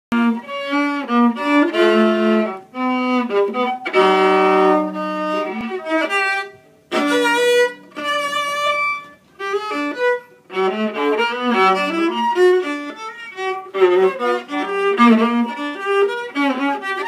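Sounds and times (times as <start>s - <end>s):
solo violin slow melody: 0.1s - 17.0s.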